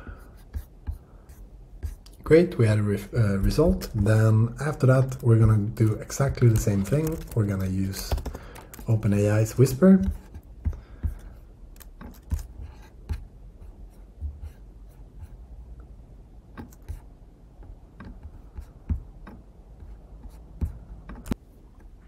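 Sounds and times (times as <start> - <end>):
computer mouse clicks and taps: 6.4 - 9.0, 10.0 - 12.5, 16.5 - 17.0, 17.6 - 19.5, 20.6 - 21.4.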